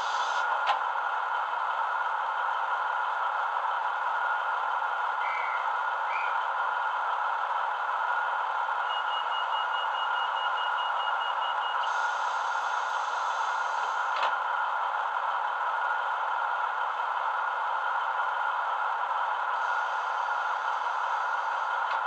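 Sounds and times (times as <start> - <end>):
air hiss from doors: 0.0 - 0.4
diesel engine idling through speaker: 0.0 - 22.0.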